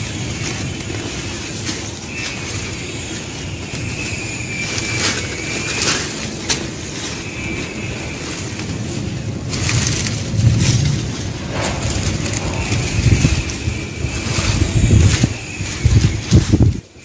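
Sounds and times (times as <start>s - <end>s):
dry leaves rustling and crackling: 0.0s - 17.0s
low uneven rumble: 6.3s - 16.7s
sharp cracks: 8.6s - 16.1s.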